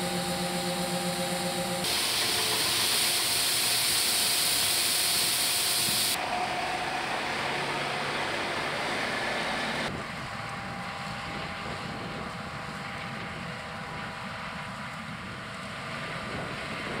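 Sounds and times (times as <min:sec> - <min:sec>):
truck air hissing: 0:00.0 - 0:06.6
combine harvester humming: 0:00.0 - 0:17.0.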